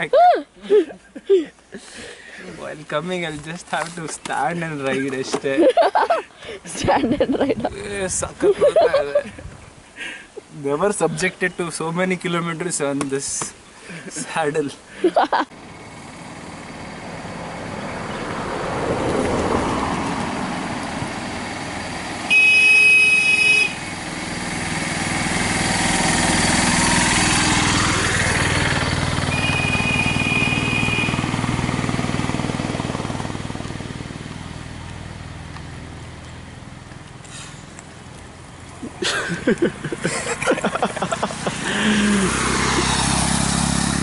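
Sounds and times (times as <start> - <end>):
traffic passing on road: 0.0 - 44.0
horn honk: 22.3 - 23.9, 29.3 - 31.5.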